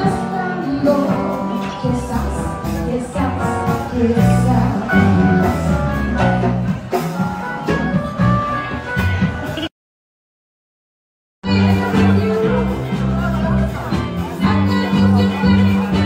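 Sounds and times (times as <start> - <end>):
woman singing into a microphone: 0.0 - 6.4, 11.4 - 13.6, 14.4 - 16.0
live band music: 0.0 - 9.7, 11.4 - 16.0.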